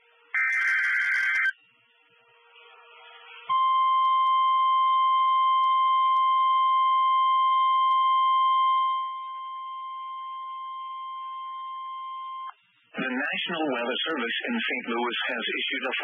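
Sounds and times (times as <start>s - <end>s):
steady high alarm tone: 0.3s - 1.6s.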